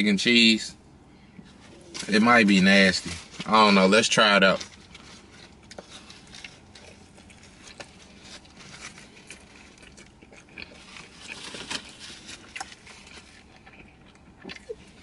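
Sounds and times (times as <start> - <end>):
person chewing food: 4.6 - 15.0.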